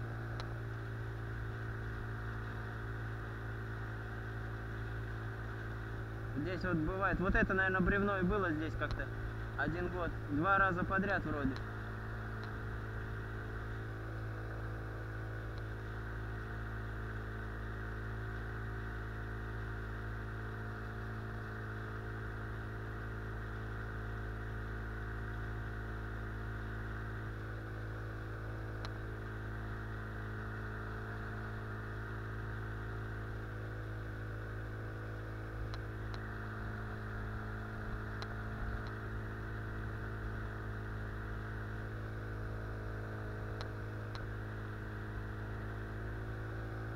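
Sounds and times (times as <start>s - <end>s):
outboard motor running: 0.0s - 46.9s
faint ticks: 0.3s - 0.5s, 43.6s - 44.3s.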